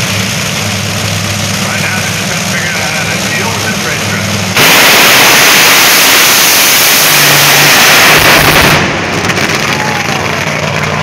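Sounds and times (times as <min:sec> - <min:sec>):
drag racing cars roaring: 0:00.0 - 0:11.0.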